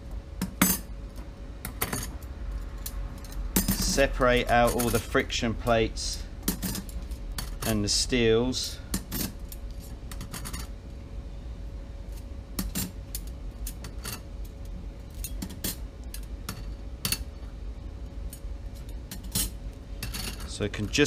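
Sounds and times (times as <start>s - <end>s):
faint steady hum: 0.0s - 21.0s
metal plates clinking: 3.3s - 5.2s.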